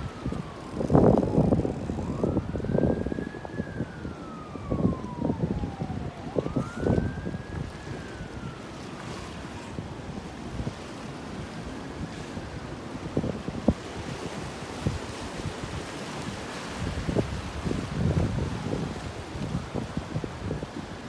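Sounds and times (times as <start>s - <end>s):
siren wailing: 0.0s - 20.9s
wind rumbling on microphone: 0.0s - 21.0s.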